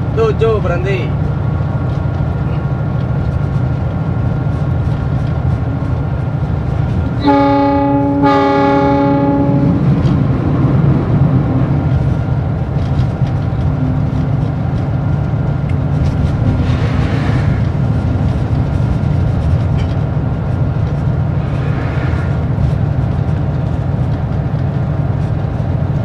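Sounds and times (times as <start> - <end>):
locomotive engine rumble: 0.0 - 26.0
locomotive horn blasts: 7.2 - 10.1.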